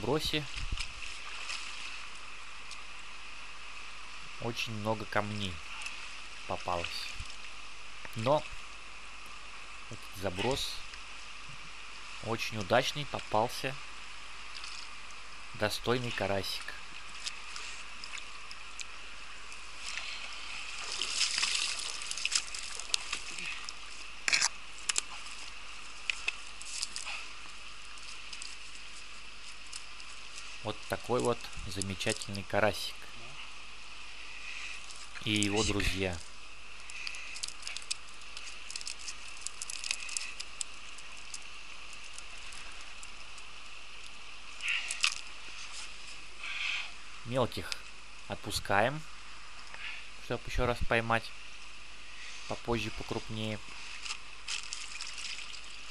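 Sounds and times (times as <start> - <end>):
stream running over stones: 0.0 - 55.9
fish pattering onto stones: 17.1 - 32.4, 36.2 - 46.0, 53.9 - 55.9
water dripping off a net: 20.7 - 23.9, 54.0 - 55.9.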